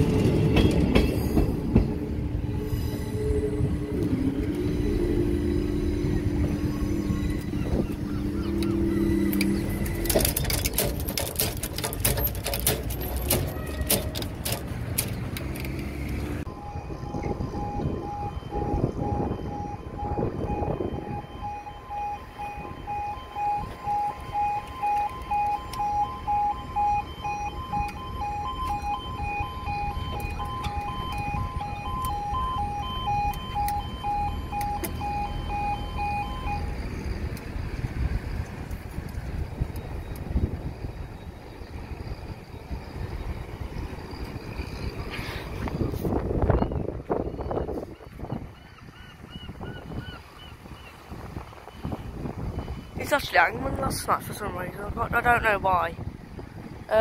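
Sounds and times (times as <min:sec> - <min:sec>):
rumbling outdoor noise: 0:00.0 - 0:57.0
level crossing alarm pulsing: 0:02.5 - 0:14.6, 0:16.4 - 0:37.5
sharp clicks and knocks: 0:09.3 - 0:16.2.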